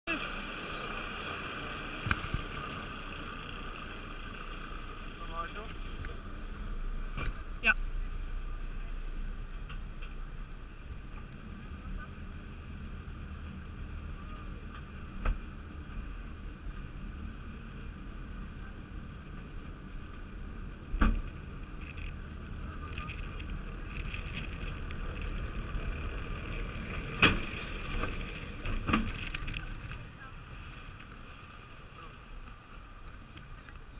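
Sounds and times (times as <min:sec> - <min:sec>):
chain lift rumble: 0:21.6 - 0:30.0.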